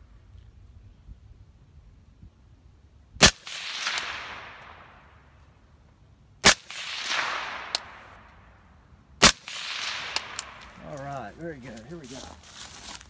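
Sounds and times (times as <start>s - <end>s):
suppressed gunshots: 3.2s - 5.2s, 6.4s - 8.4s, 9.2s - 10.8s
rolling echo: 3.2s - 5.5s, 6.5s - 11.0s.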